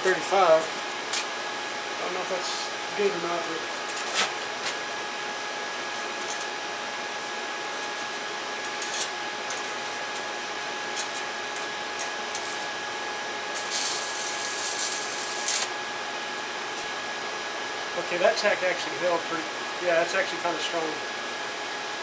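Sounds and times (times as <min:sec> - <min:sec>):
welding arc crackling: 0:07.9 - 0:15.8.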